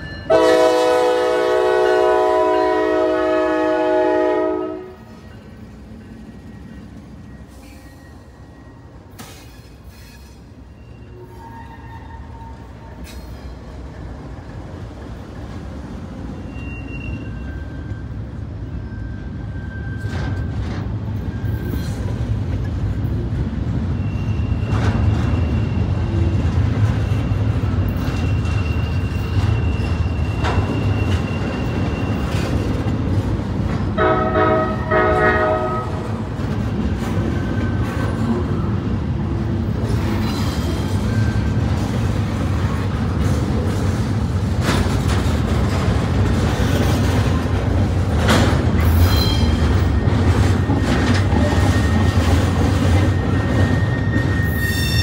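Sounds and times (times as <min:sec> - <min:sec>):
train horn: 0:00.3 - 0:05.2, 0:34.0 - 0:36.1
faint high wheel squeals: 0:05.0 - 0:13.6, 0:16.3 - 0:22.1, 0:23.8 - 0:32.9, 0:40.1 - 0:41.7, 0:48.8 - 0:55.0
rail clicks: 0:05.2 - 0:10.7, 0:11.7 - 0:55.0
freight cars rumbling and clattering: 0:11.8 - 0:54.7.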